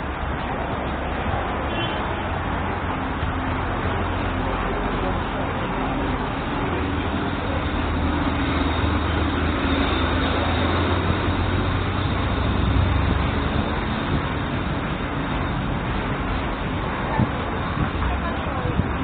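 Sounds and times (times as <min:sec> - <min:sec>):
low rumble of vehicles: 0:00.0 - 0:19.0.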